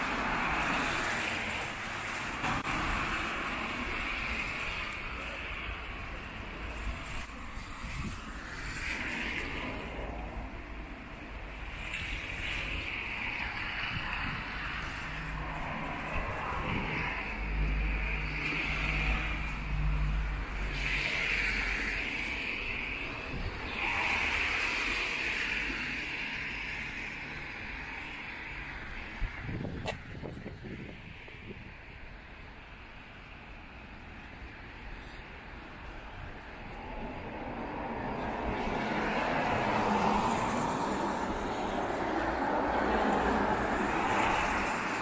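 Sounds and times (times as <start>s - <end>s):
low traffic rumble: 0.0s - 45.0s
car tyres hissing on wet road: 6.7s - 10.3s, 20.6s - 28.6s
tyre hiss on wet road: 11.6s - 29.2s.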